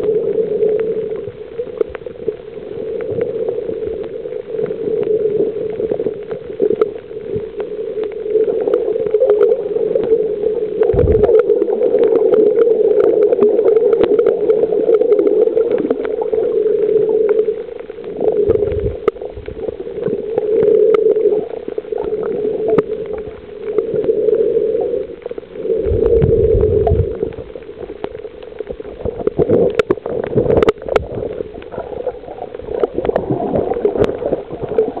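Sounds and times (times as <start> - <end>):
underwater hum: 0.0 - 35.0
water gurgling: 0.0 - 35.0
low thumps: 10.9 - 11.3.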